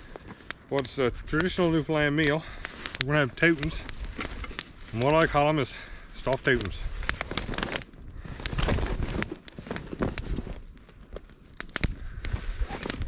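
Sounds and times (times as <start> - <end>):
fabric bag rustling and crinkling: 2.7 - 5.4, 6.6 - 11.3, 12.4 - 13.0.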